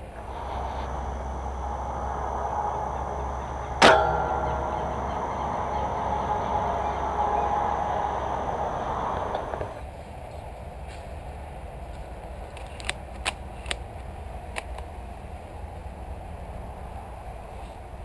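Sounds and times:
outdoor background hiss: 0.0s - 18.0s
brief metallic ringing: 0.2s - 9.8s.

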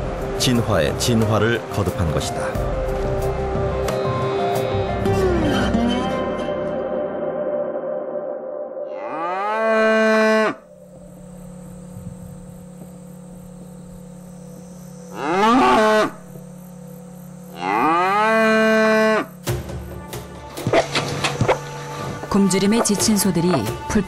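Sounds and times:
cattle mooing: 8.9s - 10.7s, 15.1s - 16.2s, 17.5s - 19.3s.

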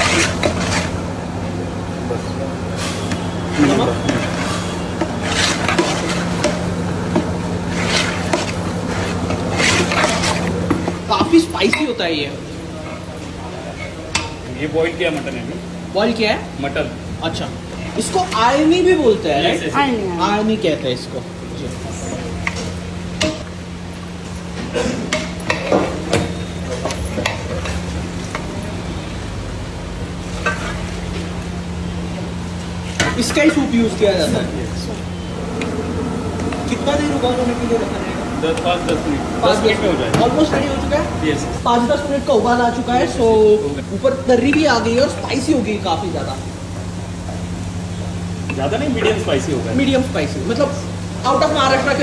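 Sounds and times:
ladle stirring in steel pot: 0.0s - 1.1s, 2.8s - 11.9s
kitchen equipment hum: 0.0s - 52.0s
steady low hum: 26.5s - 44.0s.

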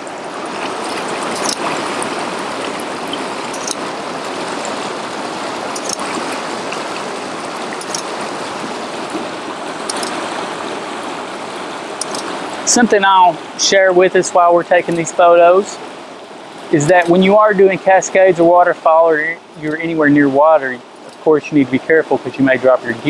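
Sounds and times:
river cascade rushing over rocks: 0.0s - 17.3s.

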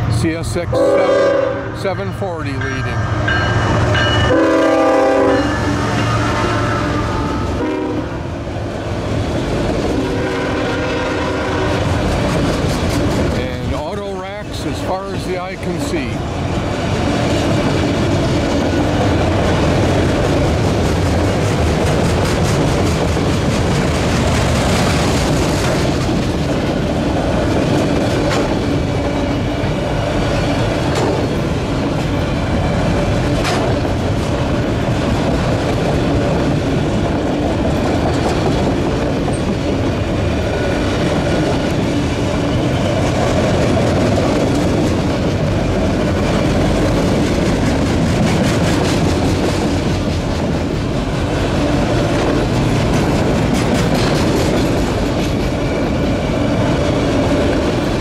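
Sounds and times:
freight train rumbling and rattling: 0.0s - 58.0s
wheels clacking over rail joints: 11.7s - 58.0s.

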